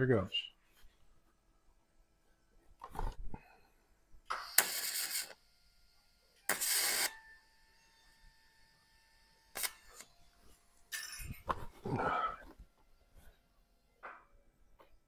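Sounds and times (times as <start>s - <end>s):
welding arc hissing crackle: 4.3s - 5.4s, 6.5s - 7.2s, 9.5s - 10.1s
welder high whine: 4.3s - 12.3s.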